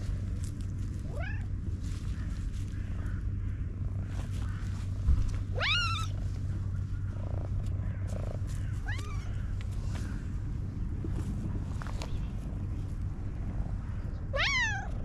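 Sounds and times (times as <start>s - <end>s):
cat purring: 0.0s - 15.0s
high kitten-like meows: 1.1s - 1.5s, 5.5s - 6.2s, 8.8s - 9.3s, 14.3s - 15.0s.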